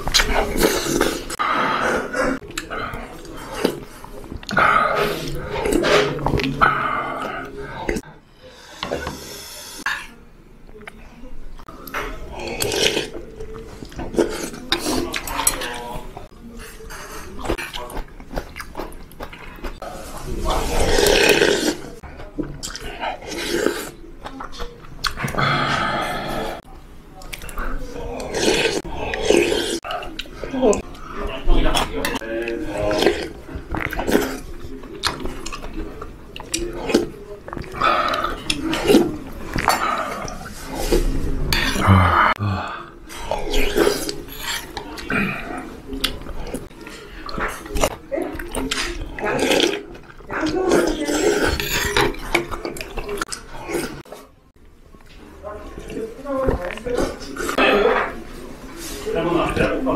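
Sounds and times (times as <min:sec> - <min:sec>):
person slurping: 0:00.0 - 0:10.2, 0:11.9 - 0:15.9, 0:19.6 - 0:22.0, 0:22.6 - 0:24.0, 0:25.0 - 0:26.6, 0:27.4 - 0:30.9, 0:32.0 - 0:35.6, 0:36.4 - 0:54.0
chewing and mouth sounds: 0:11.6 - 0:19.8, 0:20.4 - 0:25.4, 0:26.6 - 0:54.2
man slurping broth: 0:20.6 - 0:21.9, 0:28.2 - 0:29.8.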